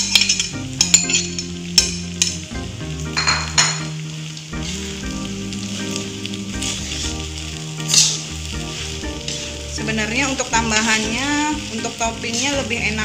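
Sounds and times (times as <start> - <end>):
food sizzling in wok: 0.0 - 13.0
spatula scraping wok: 5.7 - 13.0.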